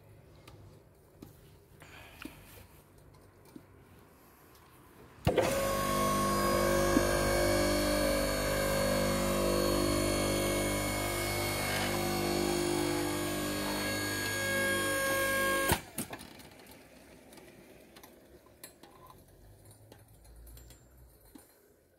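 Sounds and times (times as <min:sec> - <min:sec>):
electric motor and pump humming: 0:05.2 - 0:16.8.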